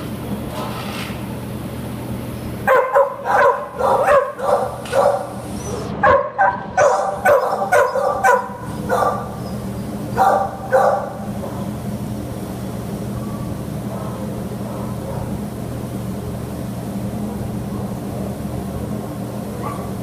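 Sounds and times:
steady low hum: 0:00.0 - 0:20.0
dogs barking: 0:02.6 - 0:11.8, 0:13.2 - 0:15.5, 0:19.4 - 0:20.0.

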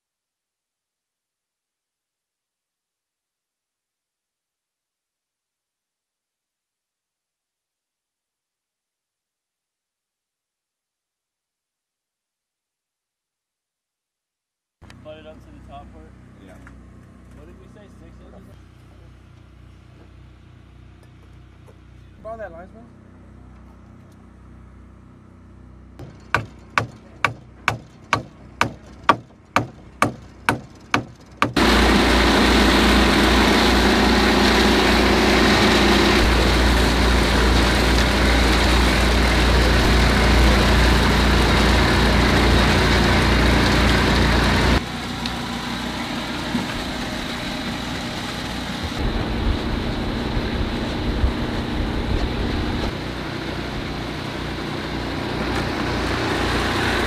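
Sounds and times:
concrete mixer engine running: 0:14.9 - 0:57.0
hammer driving nails into plywood: 0:26.0 - 0:31.6.

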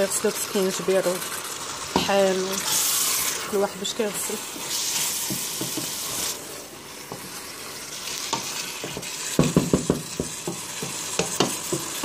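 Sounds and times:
chicken and onions sizzling: 0:00.0 - 0:12.0
spoon knocking and scraping pot: 0:05.2 - 0:06.0, 0:08.2 - 0:12.0.

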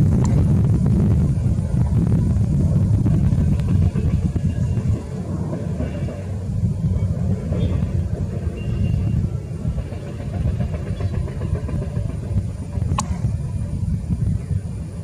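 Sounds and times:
distant jet engines rumbling: 0:00.0 - 0:15.0
sharp click: 0:12.9 - 0:13.2.

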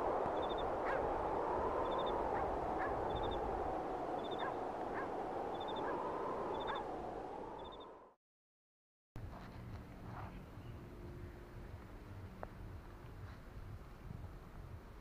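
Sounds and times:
steady rushing noise: 0:00.0 - 0:08.1.

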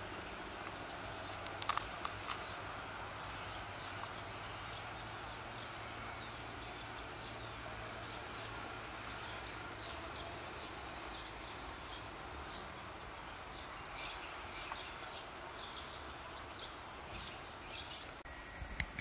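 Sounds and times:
small birds chirping: 0:00.0 - 0:18.3
outdoor hiss: 0:00.0 - 0:18.8
sharp clicks: 0:00.6 - 0:02.6.

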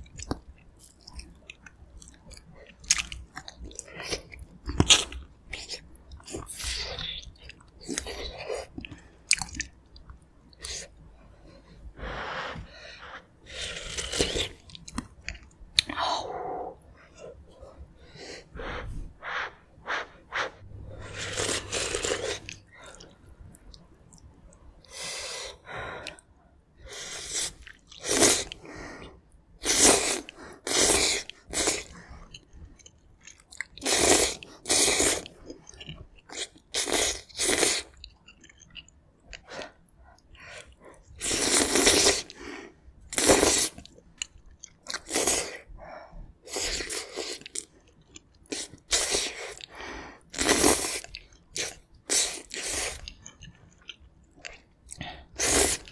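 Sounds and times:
wet chewing: 0:00.0 - 0:10.9
slurping noodles: 0:19.2 - 0:23.1, 0:26.9 - 0:28.6, 0:29.6 - 0:32.0, 0:33.8 - 0:35.4, 0:36.3 - 0:38.0, 0:41.2 - 0:42.4, 0:43.1 - 0:43.9, 0:44.9 - 0:45.7, 0:48.5 - 0:49.7, 0:50.3 - 0:53.1, 0:55.2 - 0:55.9.

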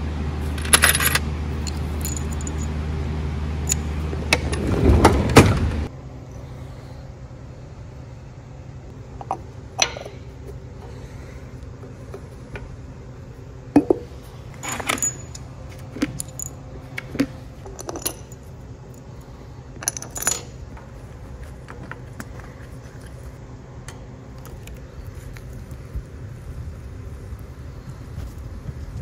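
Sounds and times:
steady low hum: 0:00.0 - 0:29.0
metal bolts clinking: 0:00.5 - 0:02.8, 0:09.2 - 0:10.5, 0:13.8 - 0:19.0, 0:19.8 - 0:22.3.

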